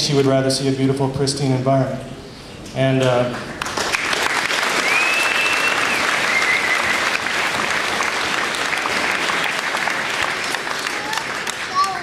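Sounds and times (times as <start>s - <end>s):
audience applauding: 3.6s - 12.0s
gliding whistle: 4.8s - 7.2s.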